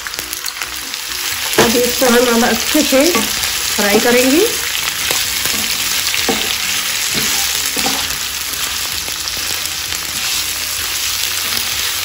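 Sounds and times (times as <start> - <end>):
food sizzling in a frying pan: 0.0 - 12.0
wooden spatula scraping a pan: 5.0 - 8.2.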